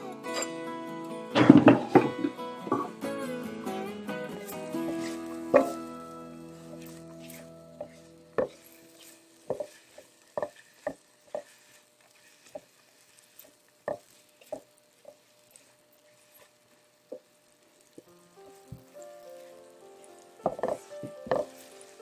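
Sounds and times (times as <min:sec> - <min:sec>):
spatula knocking and scraping pan: 0:01.4 - 0:02.9, 0:04.8 - 0:06.1, 0:06.7 - 0:16.5, 0:18.6 - 0:22.0.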